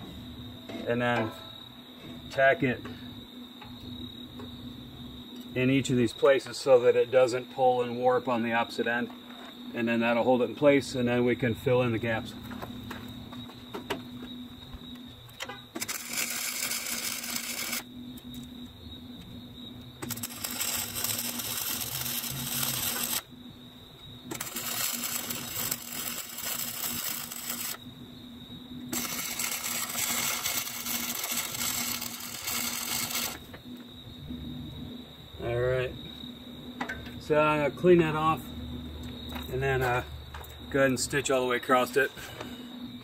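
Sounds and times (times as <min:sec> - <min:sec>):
welder arc crackling and hissing: 0:15.8 - 0:18.5, 0:20.0 - 0:23.3, 0:24.3 - 0:27.9, 0:28.9 - 0:33.9.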